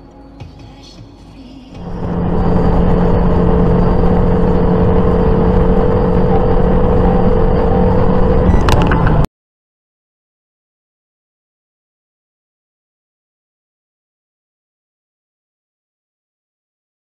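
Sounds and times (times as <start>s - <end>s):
car engine and road drone: 1.8s - 9.3s.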